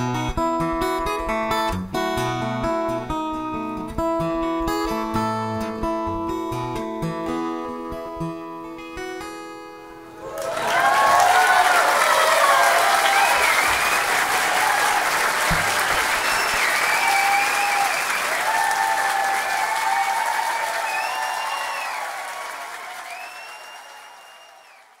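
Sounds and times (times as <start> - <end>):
audience applauding: 10.2 - 25.0
audience cheering: 10.2 - 25.0.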